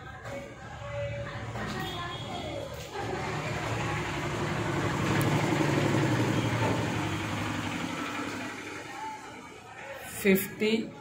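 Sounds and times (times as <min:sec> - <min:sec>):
vehicle engine humming: 0:03.0 - 0:09.5.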